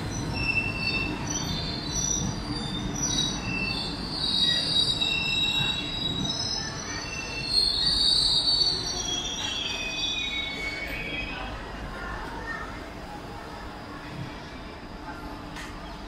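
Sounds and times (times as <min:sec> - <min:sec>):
train wheels squealing on rails: 0:00.0 - 0:12.8
low train rumble: 0:00.0 - 0:16.0.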